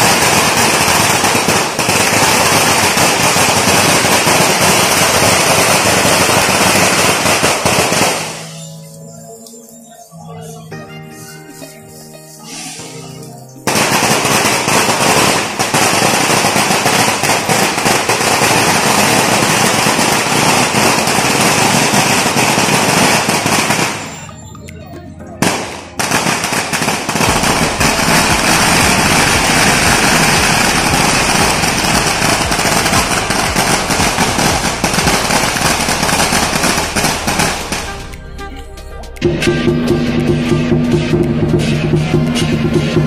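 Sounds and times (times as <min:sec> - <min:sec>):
firecrackers crackling: 0:00.0 - 0:10.1, 0:11.2 - 0:24.7, 0:25.4 - 0:43.0.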